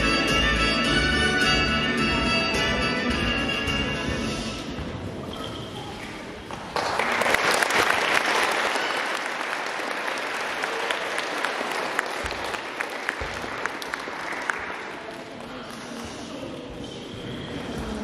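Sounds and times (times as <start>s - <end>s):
music: 0.0s - 5.1s
audience applauding: 6.7s - 15.1s.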